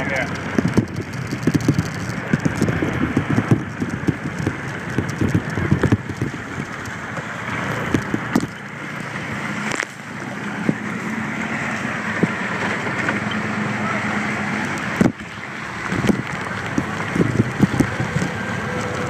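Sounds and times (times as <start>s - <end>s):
scooter engine: 0.0s - 19.0s
tyre noise: 0.0s - 19.0s
wind rushing over microphone: 0.0s - 19.0s
low knocks and bumps: 0.2s - 19.0s.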